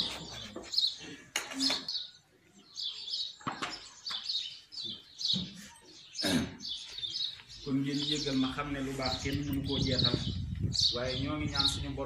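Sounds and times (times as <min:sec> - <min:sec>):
small birds chirping: 0:00.0 - 0:12.0
voices: 0:07.3 - 0:12.0.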